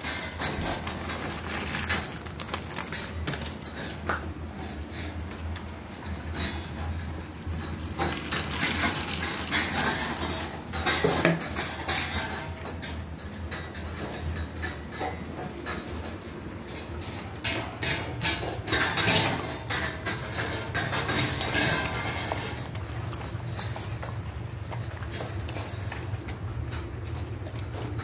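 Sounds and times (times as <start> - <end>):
rustling: 0.0 - 4.0
biscuits clattering into metal bowl: 0.0 - 12.9, 17.4 - 28.0.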